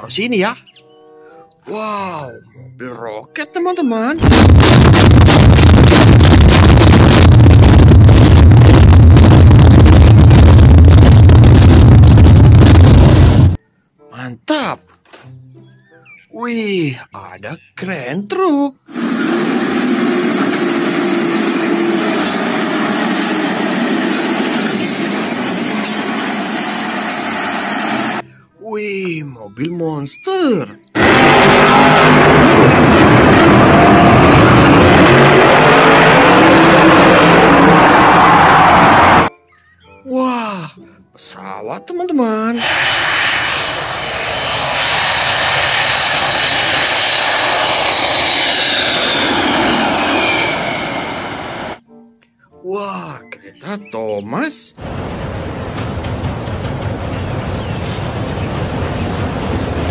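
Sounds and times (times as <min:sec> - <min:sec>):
jet aircraft roar and whine: 0:18.9 - 0:28.2, 0:31.0 - 0:39.3, 0:42.6 - 0:51.8, 0:54.8 - 0:59.9.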